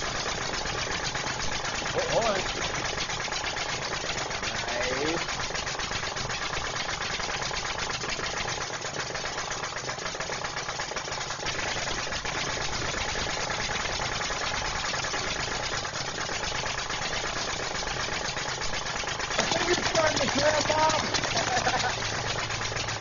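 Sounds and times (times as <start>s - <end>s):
small machine rattling: 0.0s - 23.0s.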